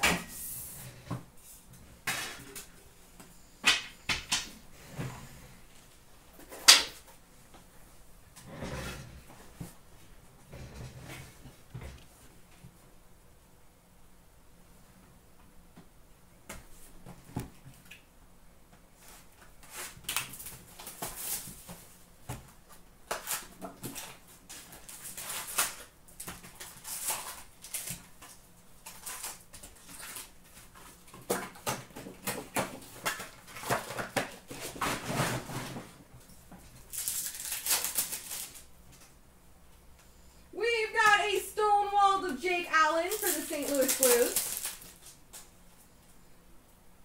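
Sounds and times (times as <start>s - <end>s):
card pack wrappers tearing: 23.1s - 30.4s, 36.8s - 38.7s, 43.0s - 45.2s.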